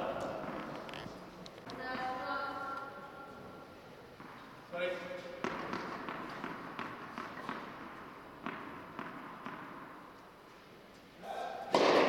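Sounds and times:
tennis ball bouncing on hard court: 5.4s - 10.2s, 11.7s - 12.0s.

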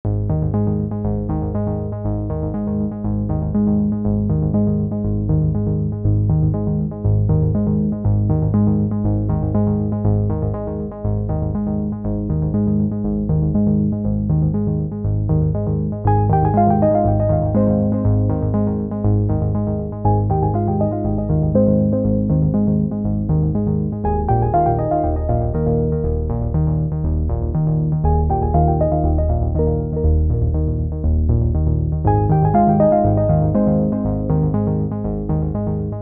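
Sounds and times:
synthesizer music: 16.1s - 36.0s.

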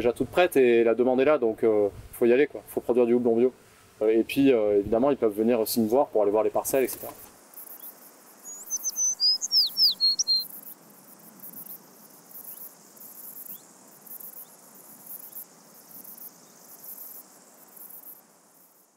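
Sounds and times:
insects chirping: 5.5s - 18.9s
songbird whistling: 8.4s - 10.6s.

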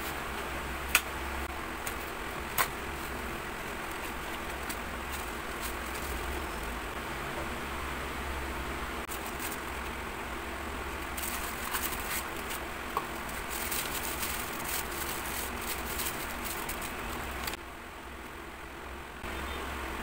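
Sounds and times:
low steady hum: 0.0s - 20.0s
tissue paper crinkling: 3.0s - 6.5s, 9.1s - 9.9s, 11.0s - 17.6s.

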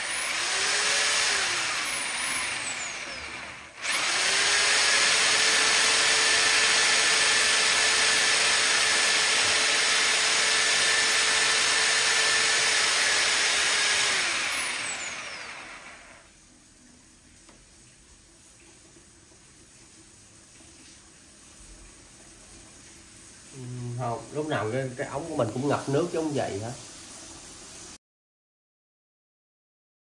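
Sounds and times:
electric motor humming and hissing: 0.0s - 16.2s.

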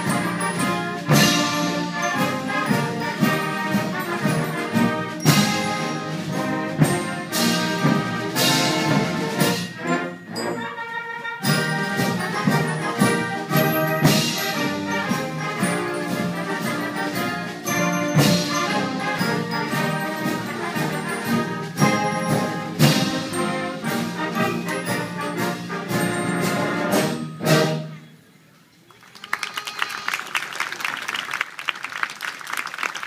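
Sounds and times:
concert band with brass playing: 0.0s - 28.2s
audience applauding: 28.9s - 33.0s.

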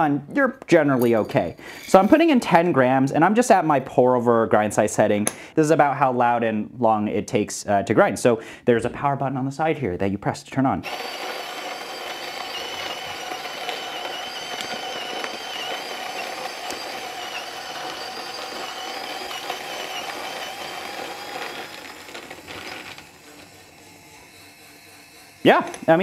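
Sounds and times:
electric coffee grinder grinding: 10.8s - 26.0s.

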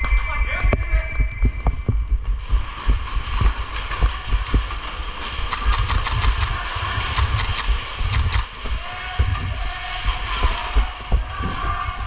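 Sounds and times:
sharp clicks: 3.3s - 8.8s.

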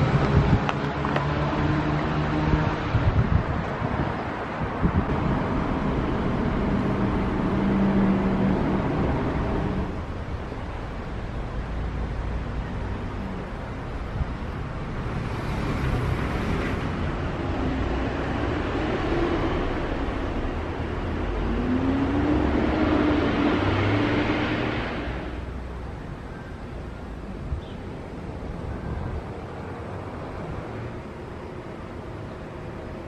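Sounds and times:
distant road traffic rumble: 0.0s - 33.0s
vehicle passing: 14.6s - 25.6s.

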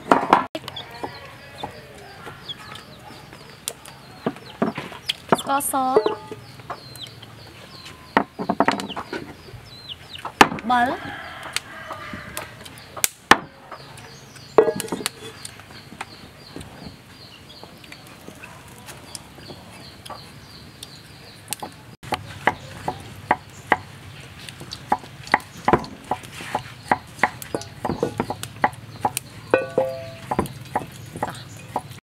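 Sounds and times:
hands knocking glass bowl: 29.6s - 30.9s.

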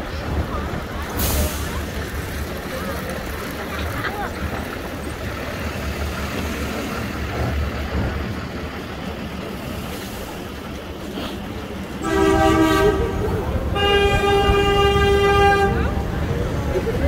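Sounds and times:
city traffic rumble: 0.0s - 17.0s
car horn blaring: 12.0s - 16.0s.

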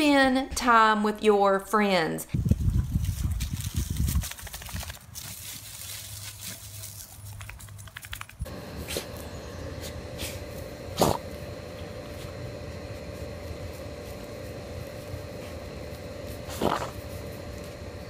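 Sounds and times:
dry leaves crackling under paws: 2.6s - 18.0s
steady hum: 8.4s - 18.0s.

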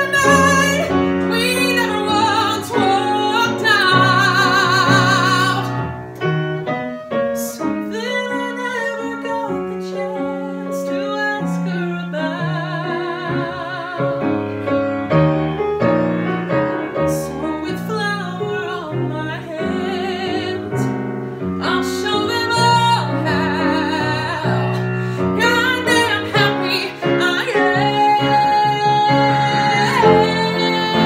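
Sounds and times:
person singing with vibrato: 0.0s - 6.0s, 7.4s - 14.4s, 21.6s - 31.0s
piano accompaniment: 0.0s - 31.0s.

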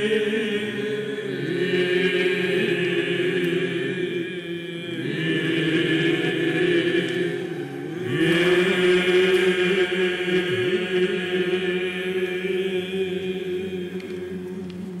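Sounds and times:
male choir chanting: 0.0s - 15.0s.

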